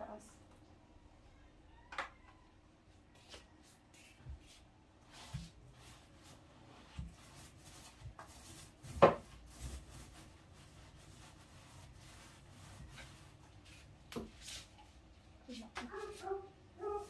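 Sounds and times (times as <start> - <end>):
paintbrush rubbing on wood: 3.2 - 17.0.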